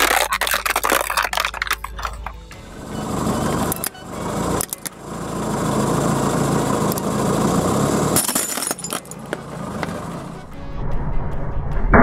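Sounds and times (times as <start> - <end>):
ceramic cracking and shattering: 0.0 - 2.3
car engine running: 0.1 - 10.5.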